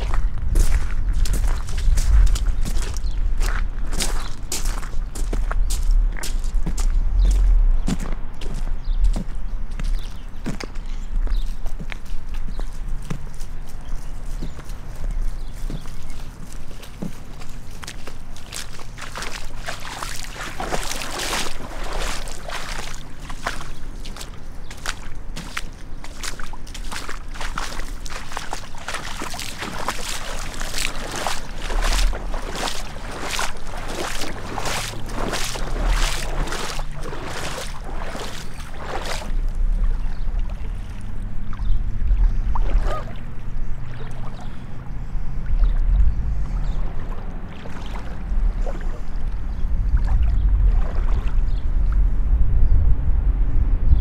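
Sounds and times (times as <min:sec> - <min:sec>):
gumboot footsteps: 0:00.0 - 0:41.2
wading through floodwater: 0:00.0 - 0:52.4.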